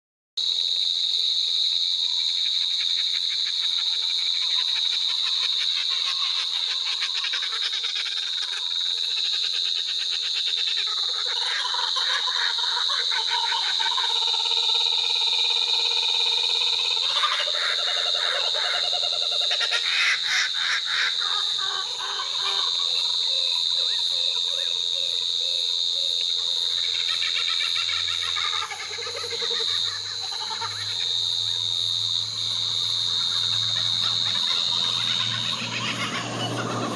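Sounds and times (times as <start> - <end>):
high-pitched insect chorus: 0.4 - 36.9
kookaburras laughing calls: 2.4 - 36.9.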